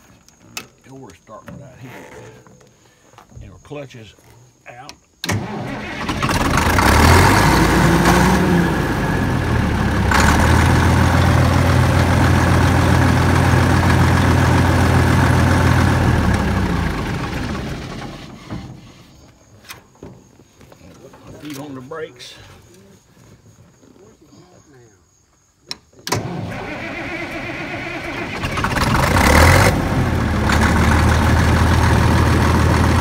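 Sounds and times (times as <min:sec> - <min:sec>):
bulldozer diesel engine cranking: 0:05.2 - 0:19.0, 0:26.0 - 0:33.0.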